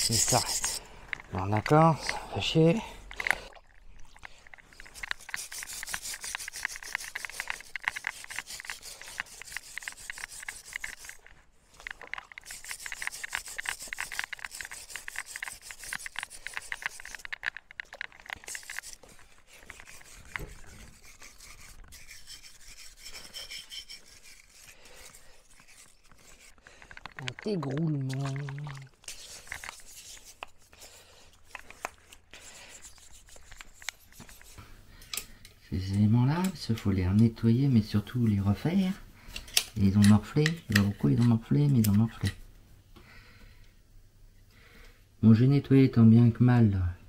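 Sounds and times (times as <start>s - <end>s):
wire brush scrubbing metal: 0.0s - 2.7s, 4.5s - 34.7s
quiet handling sounds: 0.0s - 22.2s, 24.0s - 43.8s.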